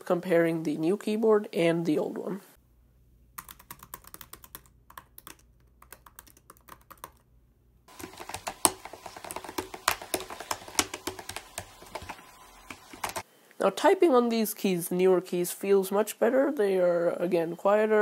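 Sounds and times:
laptop keyboard typing: 0:03.4 - 0:07.2, 0:07.9 - 0:13.2.

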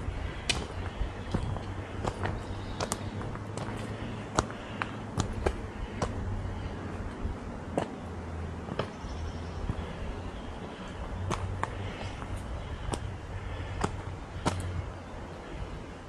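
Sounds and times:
sharp taps of footsteps: 0:00.3 - 0:06.4, 0:07.1 - 0:10.0, 0:10.9 - 0:14.8.

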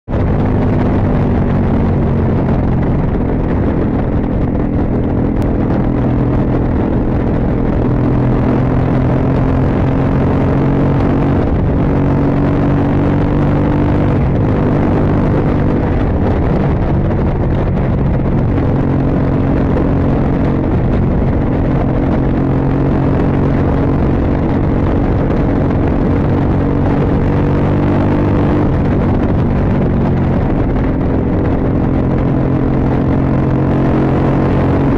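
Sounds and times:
motorcycle engine running: 0:00.0 - 0:34.9.

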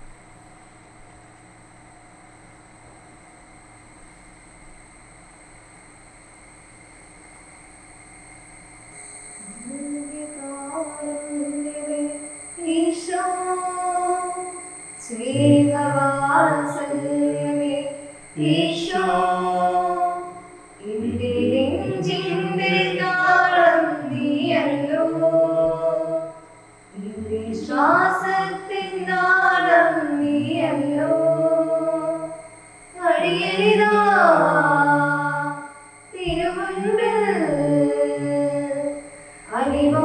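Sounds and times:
faint steady high tone: 0:08.7 - 0:40.0
choir singing a hymn: 0:09.5 - 0:32.4, 0:33.0 - 0:40.0.

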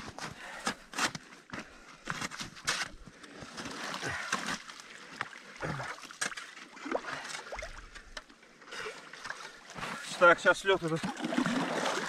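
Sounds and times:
shovel scraping ice: 0:00.0 - 0:01.2
water splashing and sloshing: 0:00.1 - 0:12.0.

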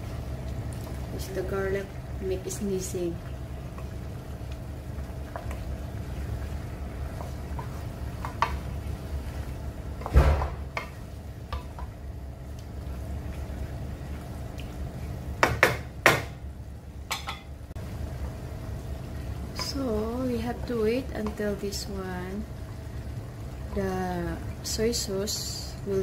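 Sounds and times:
chicken sizzling: 0:00.0 - 0:26.0
spatula knocking and scraping wok: 0:07.0 - 0:08.7, 0:10.0 - 0:12.0, 0:15.4 - 0:16.5.

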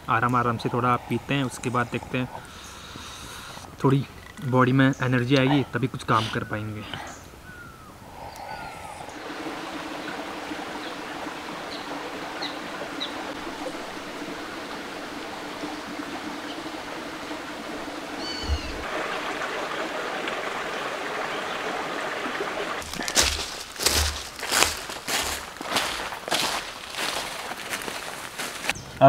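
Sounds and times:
steady rushing forest noise: 0:00.0 - 0:28.9
high bird chirps: 0:18.2 - 0:18.8.

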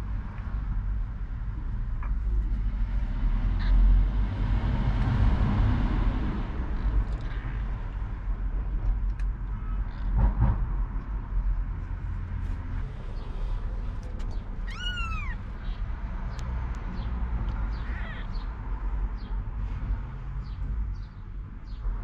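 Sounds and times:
steady low rumble: 0:00.0 - 0:20.0
kitten mewing: 0:14.6 - 0:16.0, 0:17.6 - 0:18.5.

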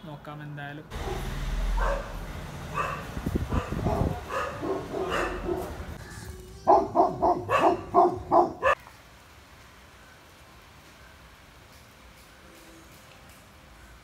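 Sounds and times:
puppy barking: 0:00.9 - 0:05.9, 0:06.7 - 0:08.8.

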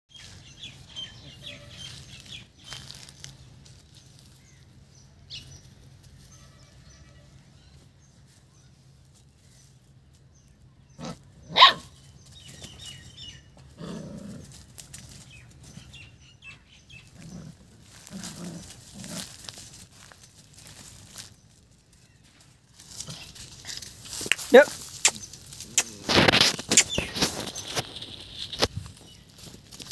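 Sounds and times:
puppy barking: 0:11.5 - 0:11.9.

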